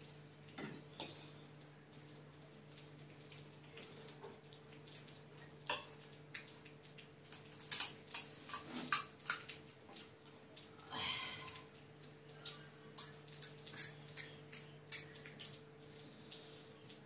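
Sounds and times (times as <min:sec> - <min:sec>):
eating crunch or slurp: 0:07.7 - 0:09.2.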